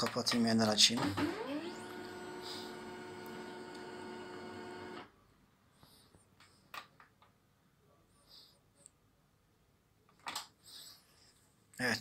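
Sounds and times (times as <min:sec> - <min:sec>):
printer motor whine: 0:01.0 - 0:05.1.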